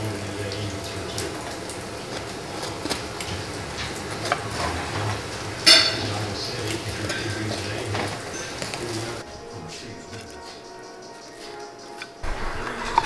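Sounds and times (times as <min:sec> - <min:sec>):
utensil scraping icing: 0:01.0 - 0:09.2
utensil clinking against metal pan: 0:03.2 - 0:10.6.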